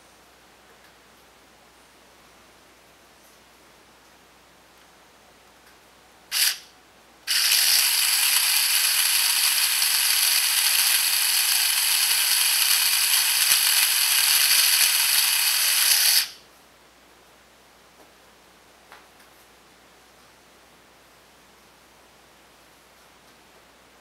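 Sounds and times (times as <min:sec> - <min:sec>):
power drill whining: 0:06.3 - 0:06.6, 0:07.3 - 0:16.4.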